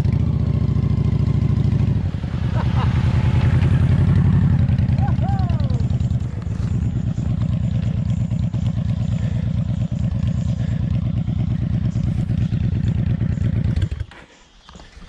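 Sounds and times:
motorcycle engine idling: 0:00.0 - 0:14.8.

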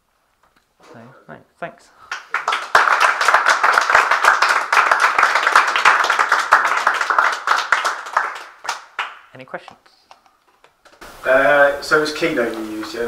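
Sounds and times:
audience applauding: 0:02.1 - 0:09.3.

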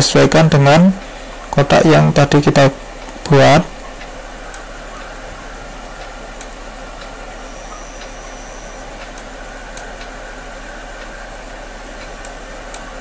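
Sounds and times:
low mains hum: 0:00.0 - 0:13.0
microphone hiss: 0:00.0 - 0:13.0
computer mouse clicks: 0:06.4 - 0:07.1, 0:09.0 - 0:10.1, 0:12.0 - 0:12.9.

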